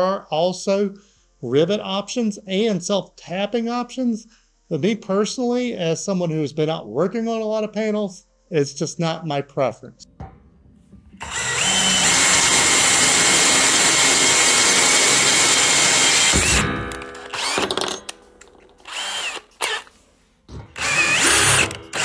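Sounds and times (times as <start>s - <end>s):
power drill boring through metal: 11.2s - 16.6s, 17.2s - 18.0s, 18.8s - 19.9s, 20.8s - 22.0s.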